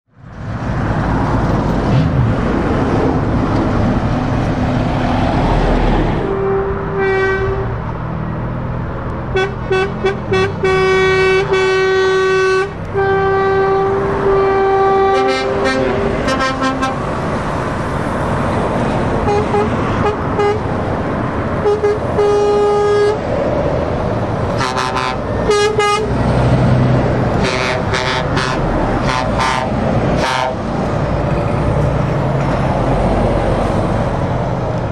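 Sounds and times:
road traffic noise: 0.1 - 34.9
truck engines running: 0.1 - 34.9
truck horns tooting: 6.2 - 7.9, 9.3 - 17.2, 19.2 - 20.8, 21.6 - 23.3, 24.5 - 26.4, 27.2 - 30.7.

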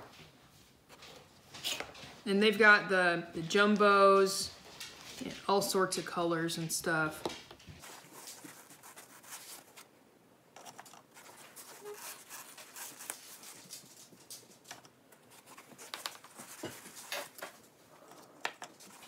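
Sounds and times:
foam insert rustling: 7.8 - 9.9, 10.6 - 17.7.

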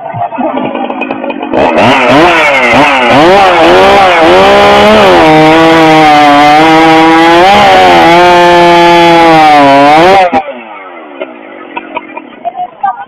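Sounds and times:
chainsaw sawing through log: 0.5 - 10.7.

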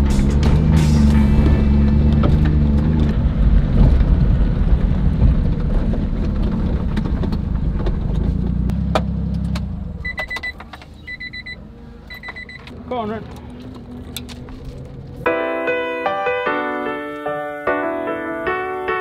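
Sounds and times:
truck engine with loud exhaust: 0.0 - 15.5
high electronic beeps: 10.0 - 12.6
tyres on gravel: 12.2 - 15.3.

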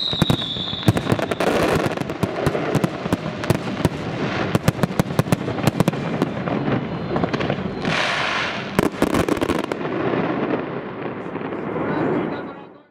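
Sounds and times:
fireworks bursting: 0.0 - 12.9
firework hiss: 7.3 - 10.6.

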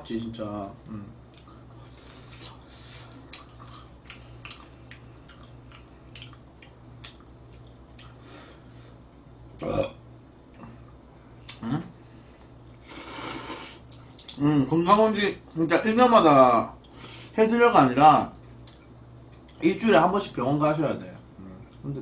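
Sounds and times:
chewing and wet mouth clicks: 1.1 - 1.6, 3.2 - 8.2, 13.9 - 14.4, 18.3 - 19.6.

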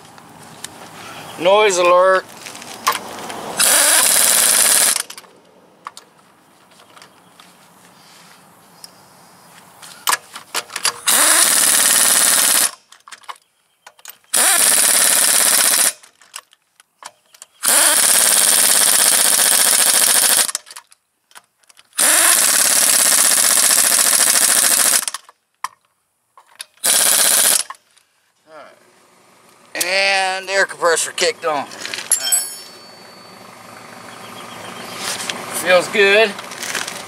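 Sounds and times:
impact wrench hammering: 32.1 - 33.2.

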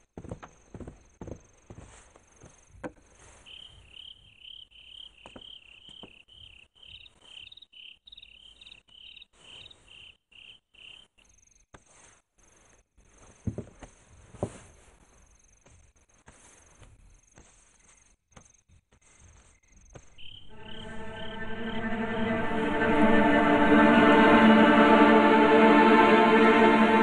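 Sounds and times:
cricket chirping: 0.6 - 11.7, 15.1 - 22.4
soft knocks and rustles: 13.3 - 20.1.

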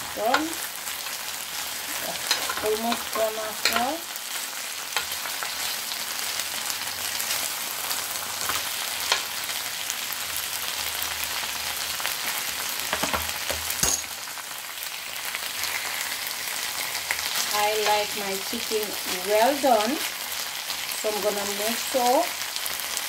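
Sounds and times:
chicken sizzling in a grill pan: 0.0 - 23.0
utensil clicking against pan: 2.2 - 4.0.

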